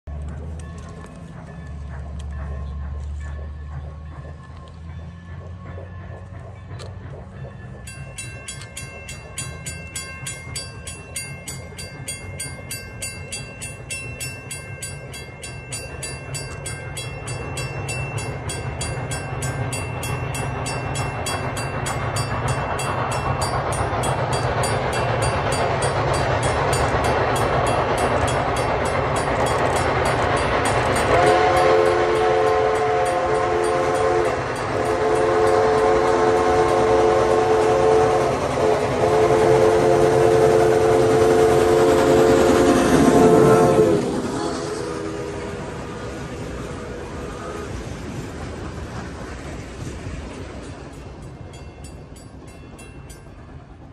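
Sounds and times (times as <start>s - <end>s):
steam locomotive exhaust: 0.1s - 53.9s
locomotive bell ringing: 0.2s - 47.8s, 50.3s - 53.9s
steam whistle blowing: 31.0s - 47.8s.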